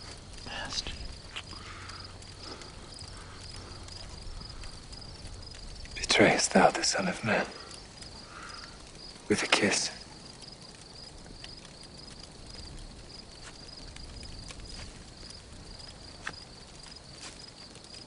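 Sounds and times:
cricket chirping: 0.0 - 18.0
faint ticks and shuffles: 0.0 - 18.0.

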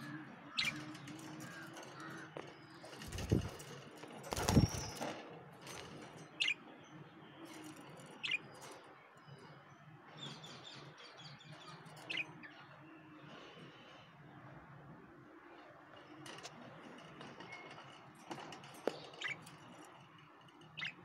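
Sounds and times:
bird wings flapping: 1.4 - 6.0.

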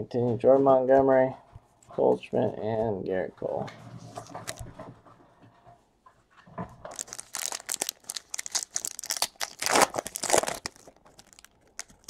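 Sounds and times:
cards being flipped through: 4.2 - 4.6, 6.9 - 12.0
plastic wrapper crinkling: 4.2 - 4.7, 6.8 - 12.0.

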